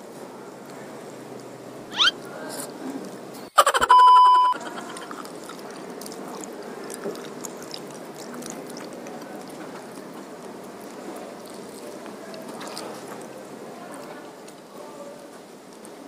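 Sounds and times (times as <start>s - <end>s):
short rising chirp: 1.9s - 2.2s
electronic beep: 3.8s - 4.8s
chewing crunchy cucumber: 4.6s - 14.7s.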